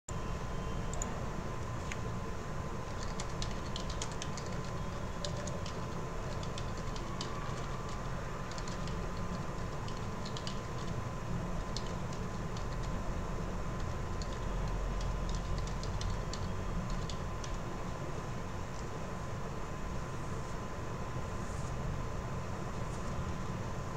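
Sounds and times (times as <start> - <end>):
faint whine: 0.1 - 23.9
keyboard keys clicking: 2.9 - 11.0, 11.6 - 13.0, 13.8 - 17.6.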